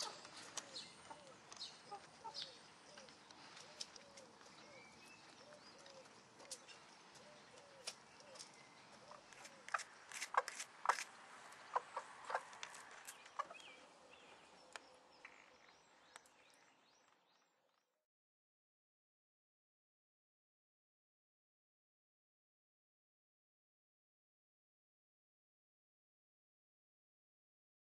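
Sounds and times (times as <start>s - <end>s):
hen clucking: 0.0s - 3.1s, 11.6s - 12.6s, 13.2s - 13.7s.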